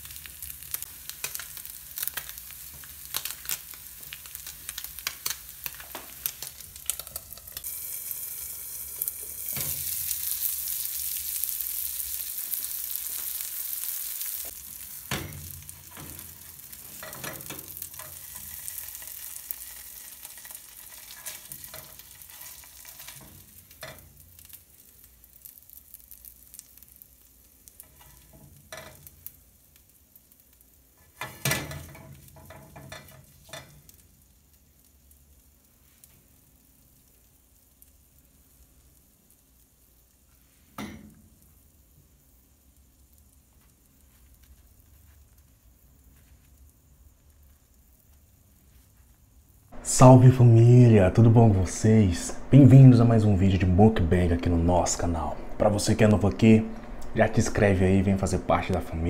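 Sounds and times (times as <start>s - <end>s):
food sizzling in frying pan: 0.0s - 59.0s
spatula knocking and scraping pan: 15.0s - 18.9s.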